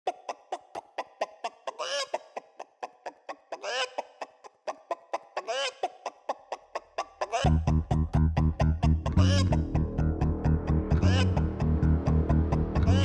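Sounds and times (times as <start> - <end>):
man clucking like a chicken: 0.0 - 9.8, 10.9 - 11.6, 12.8 - 13.0
man squawking: 9.0 - 9.7, 11.0 - 11.4.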